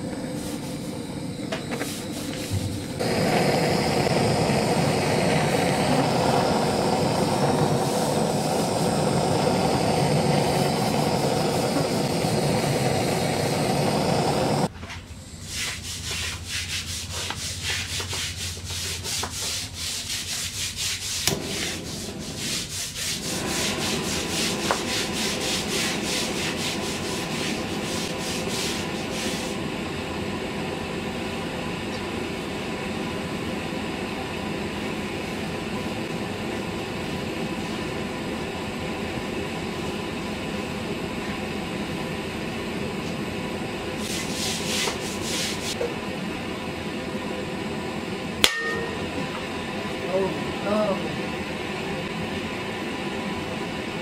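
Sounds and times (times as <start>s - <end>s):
gas torch crackling tick: 0.0s - 14.7s, 21.2s - 22.2s, 23.4s - 29.6s
gas torch flame hiss: 0.0s - 46.4s.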